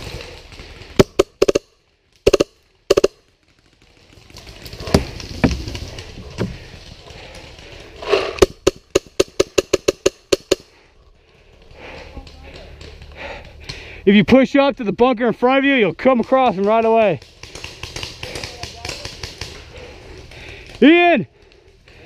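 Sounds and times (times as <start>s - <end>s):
rustling: 0.0s - 14.0s
paintball markers firing: 1.0s - 3.7s, 8.1s - 10.8s, 16.2s - 19.9s.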